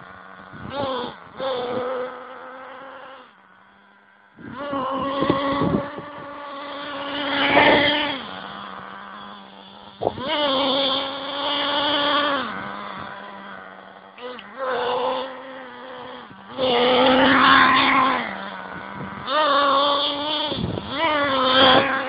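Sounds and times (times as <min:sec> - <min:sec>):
model engine idling and revving: 0:00.0 - 0:22.0.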